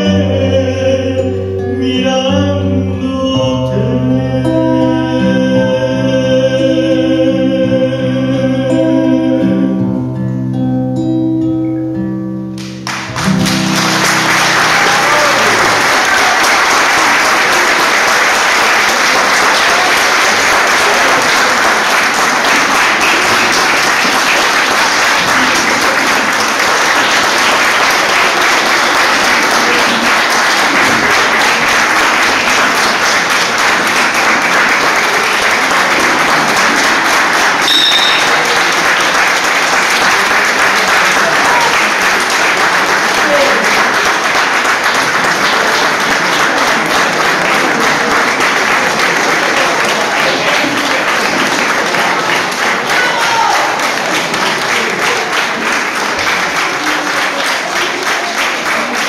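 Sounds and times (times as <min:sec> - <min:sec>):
held notes of a song: 0:00.0 - 0:15.6
audience applause: 0:12.8 - 0:59.0.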